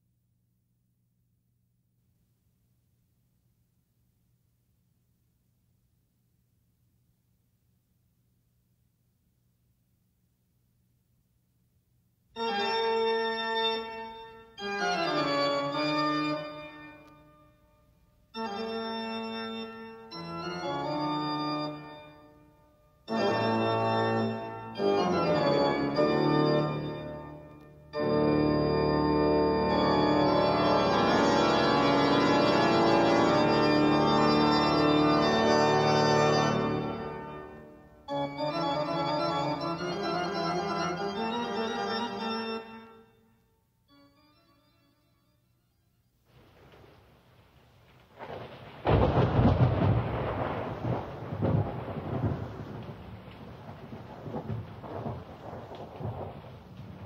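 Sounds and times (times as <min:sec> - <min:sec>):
organ chords: 0:12.4 - 0:46.2.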